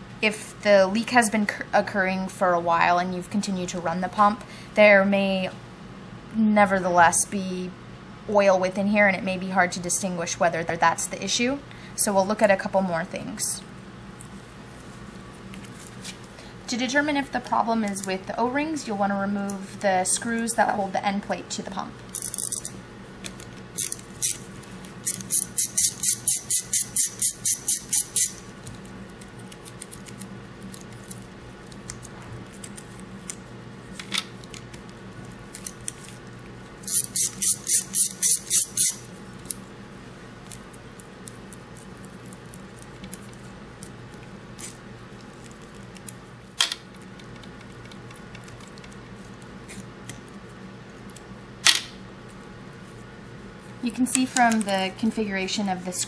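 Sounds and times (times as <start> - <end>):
socket ratchet clicking: 25.0 - 28.4, 36.8 - 39.0.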